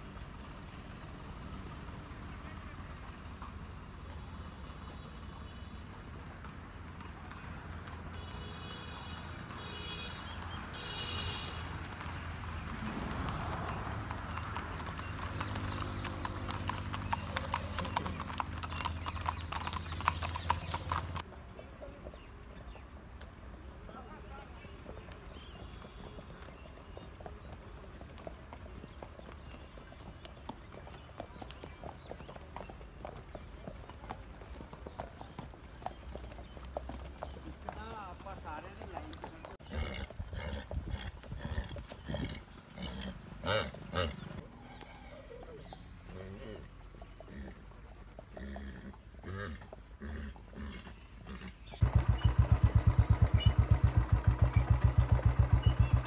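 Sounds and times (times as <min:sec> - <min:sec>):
horse hooves on paved road: 0:00.0 - 0:56.0
horse snorting: 0:39.6 - 0:44.4, 0:45.0 - 0:52.3.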